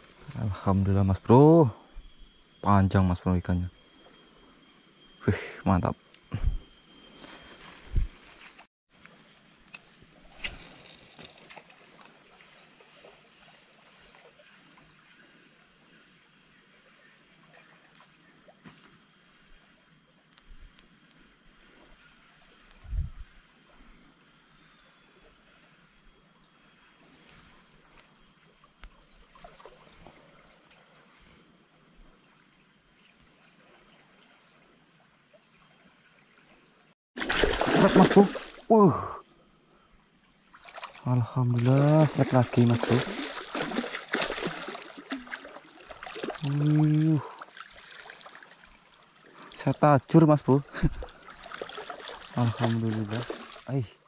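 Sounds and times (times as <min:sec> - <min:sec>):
high-pitched insect drone: 0:00.0 - 0:08.7, 0:40.8 - 0:53.8.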